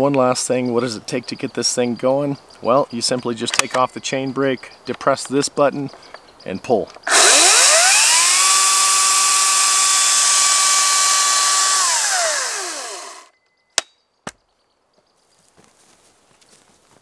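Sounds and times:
chainsaw motor whining: 7.0 - 13.3.

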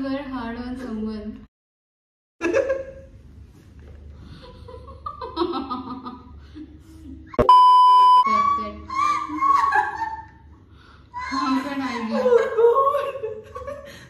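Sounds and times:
young women laughing: 4.3 - 7.4, 8.3 - 10.5, 11.2 - 14.0
high test tone beep: 7.4 - 8.3.

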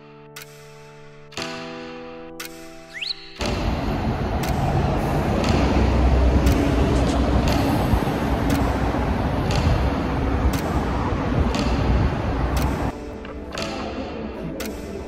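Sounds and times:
sharp ticks: 0.3 - 15.0
passing cars rumble: 3.5 - 12.9.

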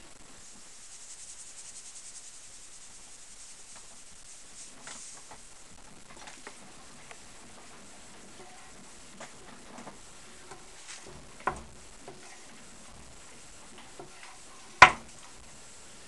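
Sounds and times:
wooden paddles patting butter: 3.7 - 15.6
paddle knocking on work surface: 14.8 - 15.1.

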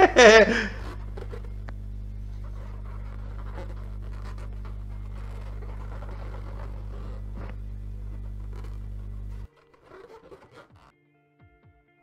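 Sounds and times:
low hum: 0.0 - 9.5
faint crackle and rustling: 0.0 - 10.9.

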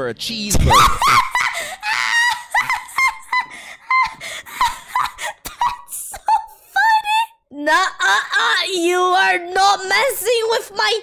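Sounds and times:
woman giggling: 0.7 - 6.6.

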